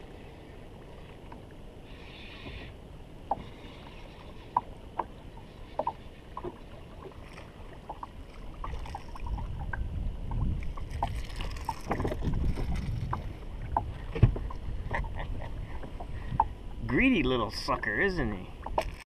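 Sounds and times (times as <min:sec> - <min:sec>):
water lapping against boat hull: 0:00.0 - 0:19.0
wind buffeting microphone: 0:08.0 - 0:17.1.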